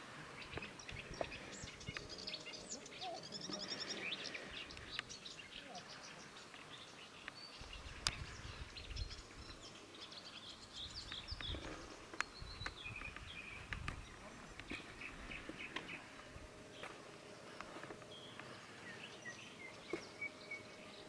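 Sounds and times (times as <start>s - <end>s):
small birds chirping and trilling: 0.0s - 21.0s.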